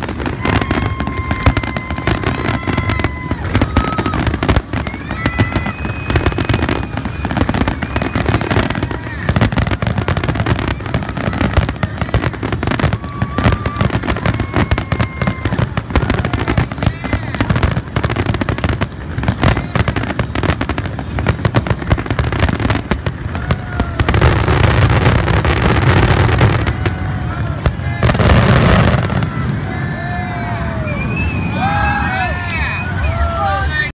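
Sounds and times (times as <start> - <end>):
fireworks bangs and crackling: 0.0 - 33.9.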